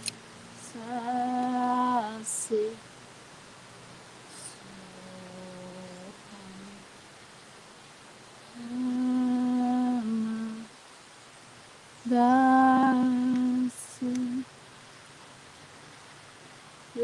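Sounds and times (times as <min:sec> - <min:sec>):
woman humming held notes: 0:04.4 - 0:06.8, 0:08.5 - 0:10.7, 0:12.1 - 0:14.5.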